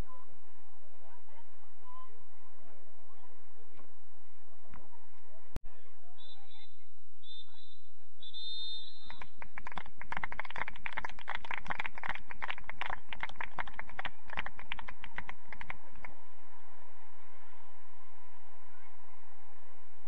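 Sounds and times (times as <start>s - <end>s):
referee's whistle blasts: 6.2s - 9.1s
spectators clapping: 9.1s - 16.1s.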